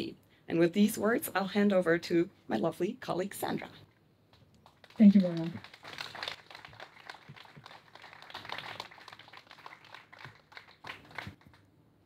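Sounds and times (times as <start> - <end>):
audience applauding: 4.7 - 11.7.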